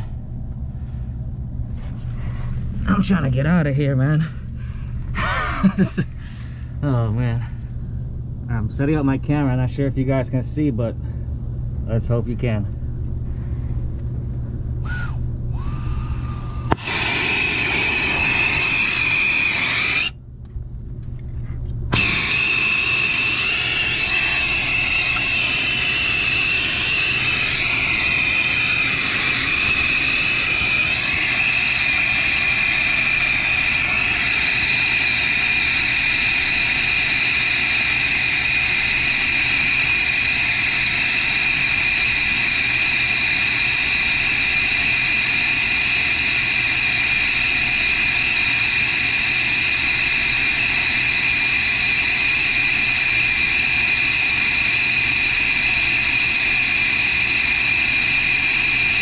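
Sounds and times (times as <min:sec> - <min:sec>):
torch flame hissing and whistling: 0:14.8 - 0:20.2, 0:21.9 - 0:59.0.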